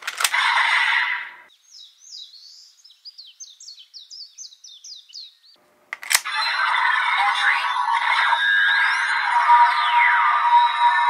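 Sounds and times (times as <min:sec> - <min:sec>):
glitchy electronic noise: 0:06.3 - 0:11.0.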